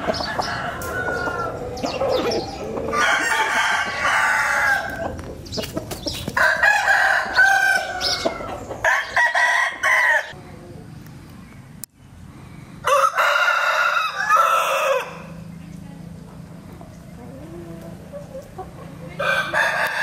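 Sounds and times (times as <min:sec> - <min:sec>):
roosters crowing: 0:00.0 - 0:11.0, 0:12.6 - 0:15.5, 0:16.8 - 0:20.0.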